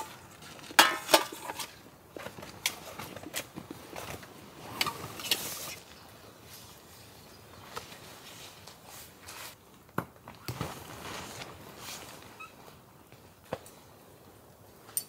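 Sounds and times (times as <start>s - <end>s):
camping gear clicks and knocks: 0.0s - 5.9s
nylon rustling: 10.4s - 13.3s.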